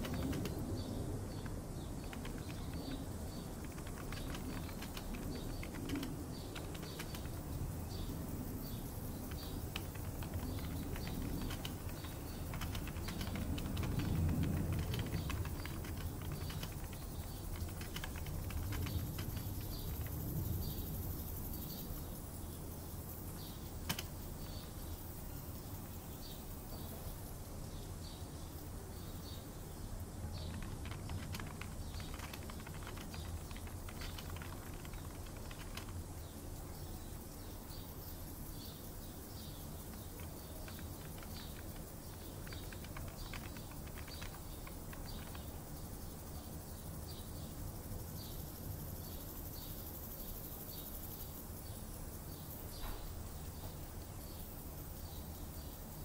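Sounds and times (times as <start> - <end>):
typing on computer keyboard: 0.0 - 20.8, 23.7 - 24.7, 30.3 - 36.4, 39.4 - 45.7.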